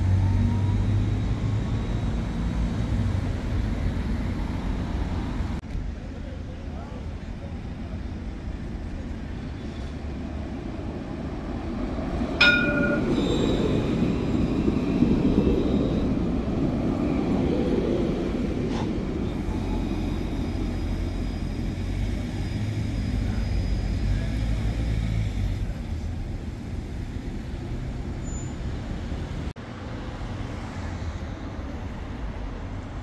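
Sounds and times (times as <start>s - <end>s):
tram rumbling on rails: 0.0s - 33.0s
sharp knock with ringing tone: 12.4s - 13.2s.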